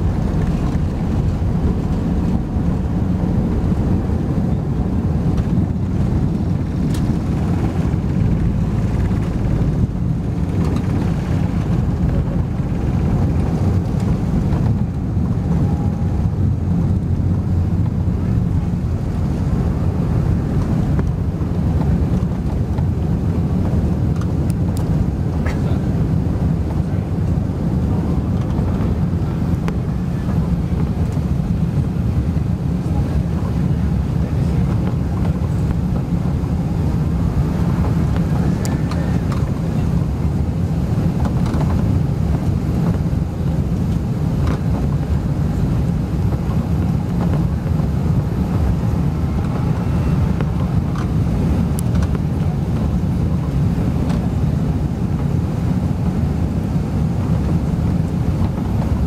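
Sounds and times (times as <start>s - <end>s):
jet engines and airflow rumble: 0.0s - 59.0s.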